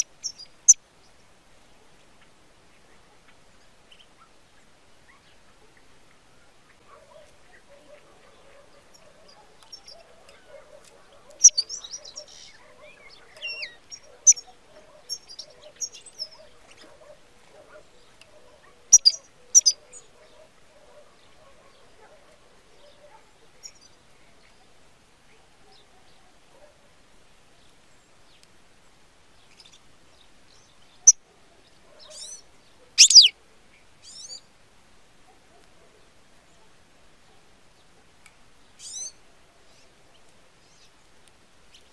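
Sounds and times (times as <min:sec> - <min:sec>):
goldfinch chirping and twittering: 0:00.0 - 0:00.8, 0:11.3 - 0:16.9, 0:18.9 - 0:20.1, 0:32.0 - 0:32.4, 0:33.0 - 0:33.3, 0:38.8 - 0:40.9.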